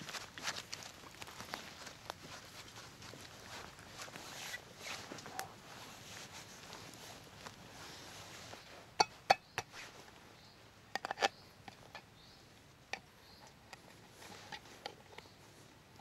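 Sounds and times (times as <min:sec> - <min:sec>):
hands brushing soil: 0:00.0 - 0:10.2.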